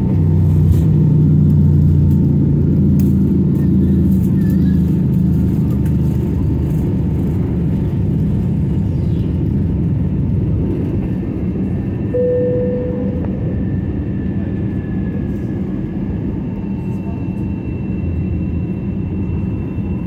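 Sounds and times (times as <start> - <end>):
jet engines rumbling in cabin: 0.0 - 20.0
short steady tone: 12.1 - 13.7.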